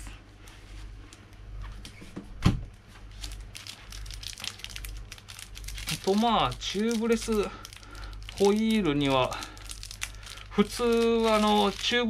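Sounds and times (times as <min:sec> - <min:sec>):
rustling and crinkling: 0:02.8 - 0:12.0.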